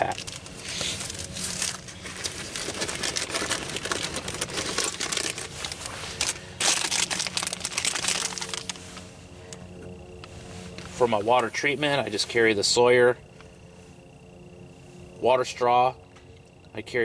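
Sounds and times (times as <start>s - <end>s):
plastic packaging crinkling: 0.0s - 9.1s.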